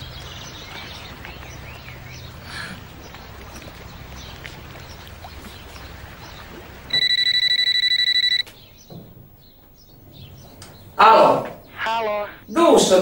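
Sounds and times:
birds chirping: 0.0s - 13.0s
cordless phone ringing: 6.9s - 8.5s.

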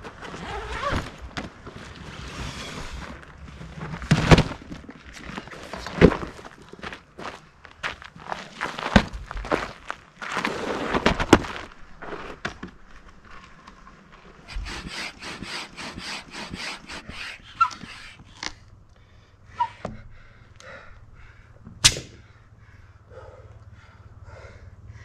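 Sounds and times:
hand pump airy strokes: 14.5s - 18.6s.

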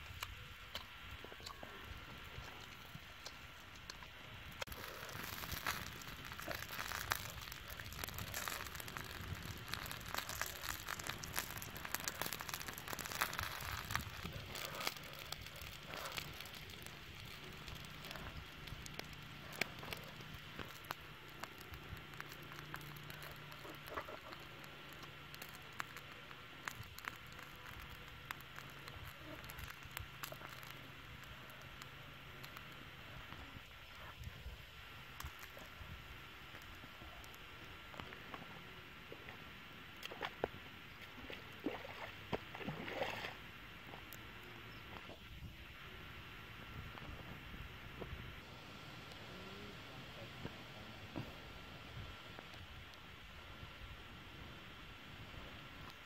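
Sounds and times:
small pops: 0.0s - 38.5s
wood fire crackling: 0.0s - 42.6s
chicken wings sizzling: 4.6s - 32.8s.

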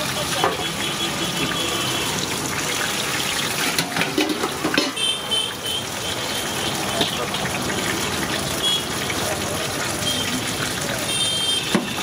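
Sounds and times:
metal ladle clanking on wok: 3.6s - 5.1s.

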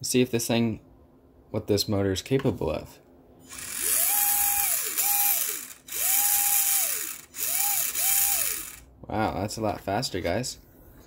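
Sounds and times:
small motor and gears whining: 3.5s - 8.9s.

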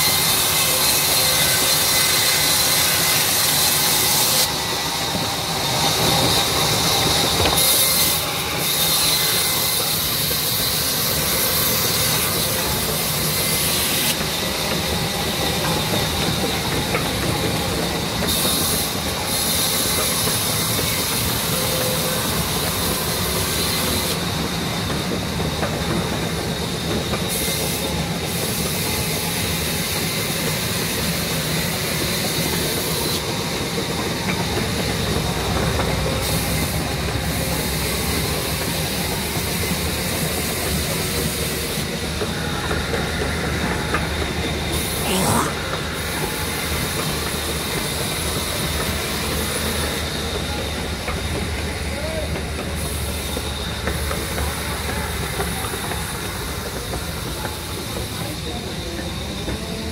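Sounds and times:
band saw humming and whining: 0.0s - 21.3s.

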